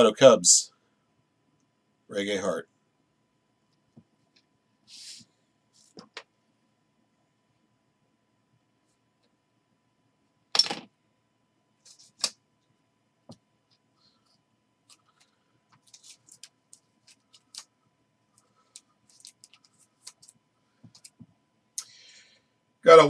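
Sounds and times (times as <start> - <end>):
plastic sleeve rustling: 14.9 - 17.8, 18.4 - 21.2
plastic crackle: 15.0 - 17.7, 18.4 - 21.2.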